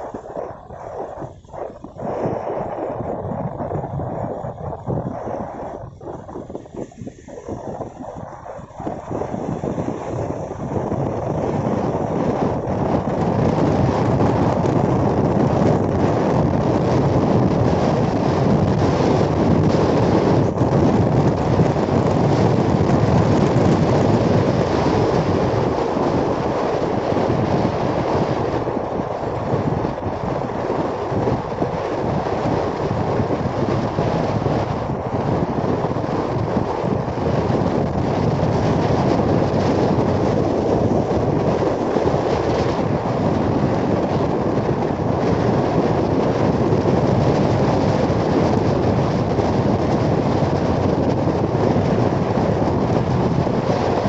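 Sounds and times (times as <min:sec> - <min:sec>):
low running rumble: 0:00.0 - 0:54.0
wind buffeting microphone: 0:00.0 - 0:54.0.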